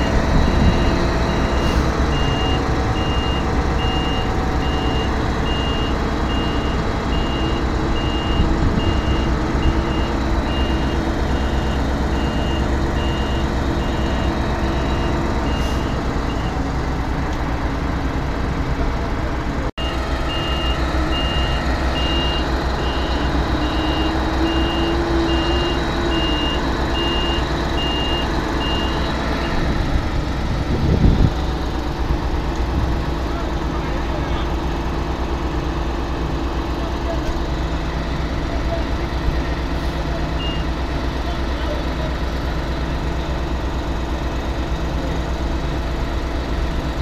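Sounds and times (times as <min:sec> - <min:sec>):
reversing alarm beeping: 0:00.0 - 0:16.6, 0:19.8 - 0:29.6, 0:40.4 - 0:40.8
heavy diesel machinery running: 0:00.0 - 0:47.0.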